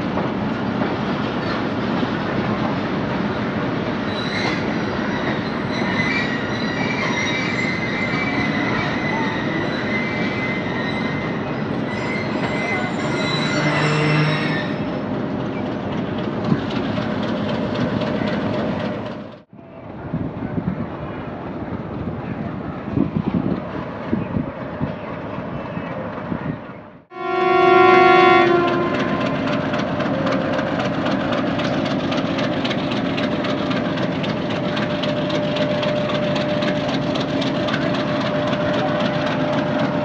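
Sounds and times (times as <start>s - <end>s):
train wheels rumbling on rails: 0.0s - 40.0s
high-pitched wheel squeal: 4.0s - 15.1s, 34.4s - 40.0s.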